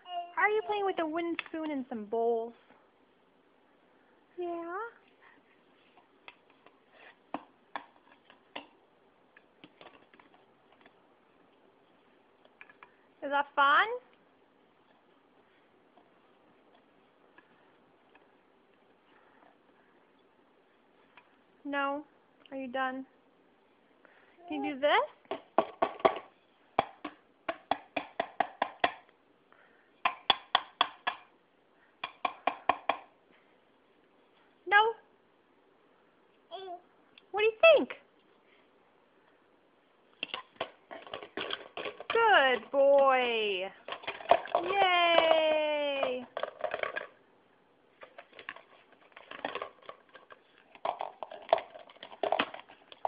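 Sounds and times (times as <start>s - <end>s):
spoon and plastic bowls knocking: 25.3s - 29.1s, 30.0s - 31.4s, 32.0s - 33.1s
wooden spoon tapping on a bowl: 32.0s - 33.1s.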